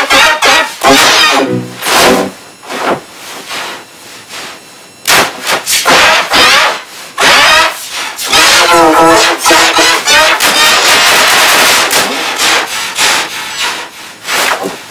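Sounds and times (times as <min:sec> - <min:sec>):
harsh distorted noisy bursts: 0:00.0 - 0:14.9
brief pitched tone: 0:01.2 - 0:02.3.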